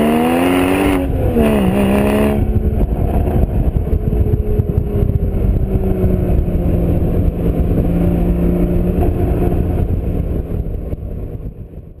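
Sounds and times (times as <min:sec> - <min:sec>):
car engine cruising: 0:00.0 - 0:12.0
wind and road noise: 0:00.0 - 0:12.0.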